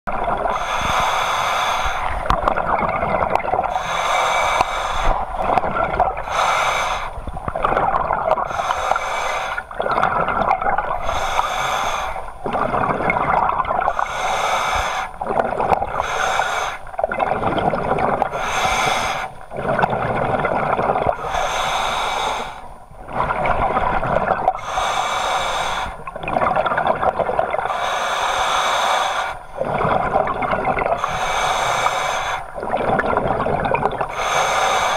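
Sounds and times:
exhaled bubbles underwater: 0:00.1 - 0:34.9
regulator inhale hissing: 0:00.5 - 0:02.2, 0:03.7 - 0:05.4, 0:06.2 - 0:07.2, 0:08.4 - 0:09.7, 0:11.0 - 0:12.4, 0:13.9 - 0:15.2, 0:15.9 - 0:16.9, 0:18.3 - 0:19.4, 0:21.2 - 0:22.7, 0:24.6 - 0:26.1, 0:27.7 - 0:29.7, 0:31.0 - 0:32.6, 0:34.0 - 0:34.9.

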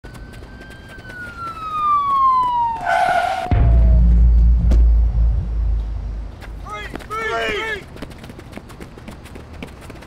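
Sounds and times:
siren-like tone gliding down: 0:00.1 - 0:06.2
deep bass boom rumble: 0:03.5 - 0:06.4.

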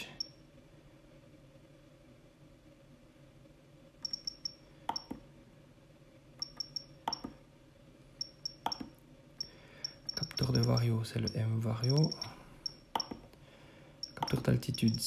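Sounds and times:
short high key beeps: 0:04.0 - 0:05.1, 0:06.4 - 0:07.2, 0:08.2 - 0:08.8, 0:09.4 - 0:13.2, 0:14.0 - 0:15.0
key press click: 0:08.5 - 0:08.9, 0:09.9 - 0:12.3, 0:14.0 - 0:15.0.

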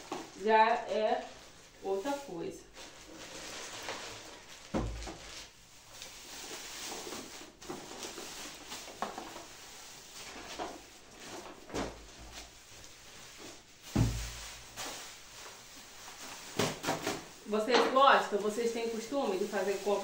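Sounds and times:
plastic bags rustling: 0:00.0 - 0:20.0
packages thumping on a table: 0:04.7 - 0:05.3, 0:13.8 - 0:15.0, 0:16.5 - 0:17.3.

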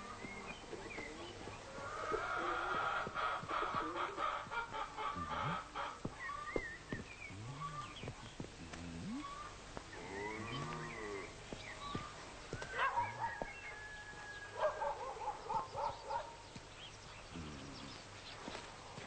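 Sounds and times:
dog barking: 0:12.8 - 0:13.4, 0:14.6 - 0:16.4.

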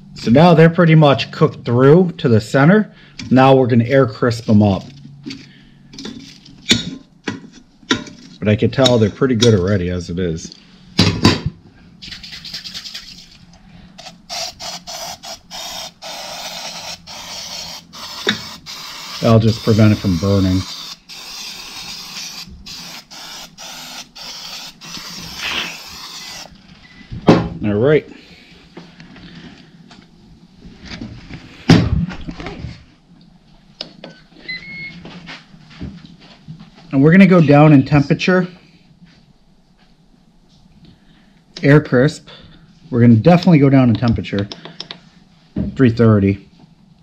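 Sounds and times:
oil spray hissing: 0:14.0 - 0:26.5.

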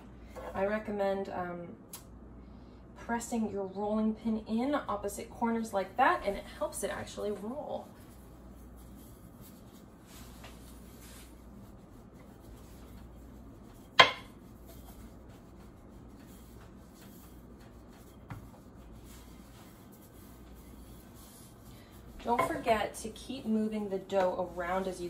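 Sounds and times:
rolling pin rubbing on dough: 0:06.0 - 0:25.0.

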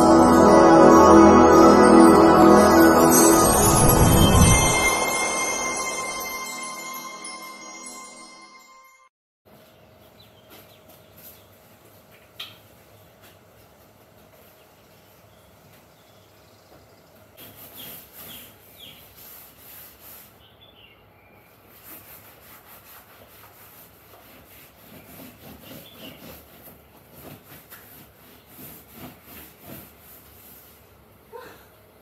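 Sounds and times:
cloth scrubbing sofa: 0:21.7 - 0:30.9.

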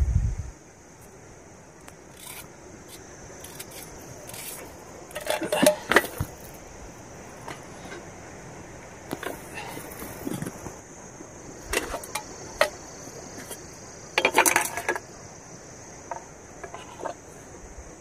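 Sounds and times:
faint hiss: 0:00.0 - 0:18.0.

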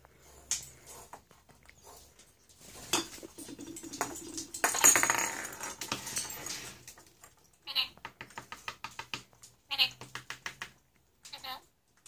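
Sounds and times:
plastic toy ball rattling and jingling: 0:03.2 - 0:07.4.

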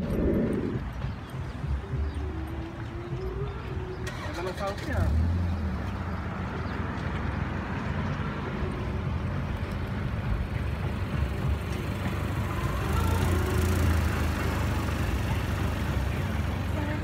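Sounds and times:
low outdoor rumble: 0:00.0 - 0:04.1.

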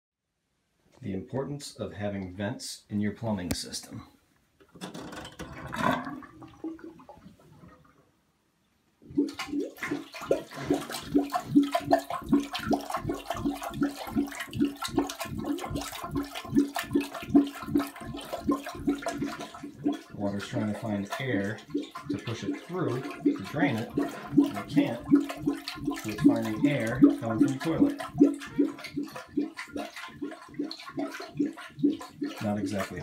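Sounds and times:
toilet bowl gurgling: 0:05.2 - 0:07.8, 0:09.0 - 0:33.0.

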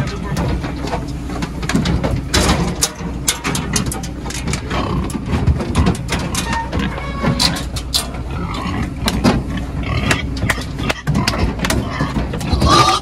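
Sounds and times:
hooves and gates clattering on metal: 0:00.0 - 0:13.0
steady low rumble: 0:00.0 - 0:13.0.

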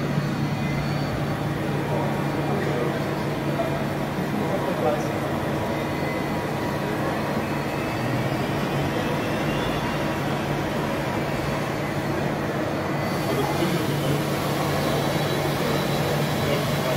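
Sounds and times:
lathe machine hum: 0:00.0 - 0:16.9
coolant spray hissing: 0:13.0 - 0:16.9.

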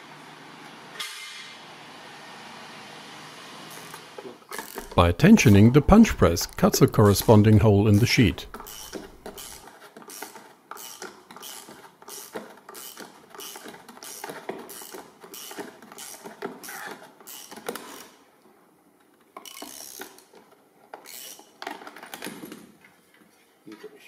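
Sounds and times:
ratchet wrench strokes: 0:04.6 - 0:05.0, 0:08.5 - 0:18.1, 0:19.4 - 0:20.2, 0:21.0 - 0:21.5.

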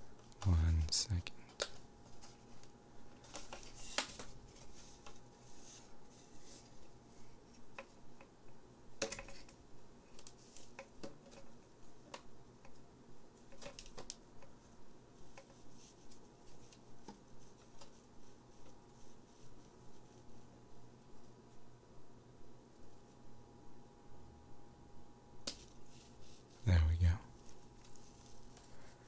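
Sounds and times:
paper and plastic crinkling: 0:27.3 - 0:29.0.

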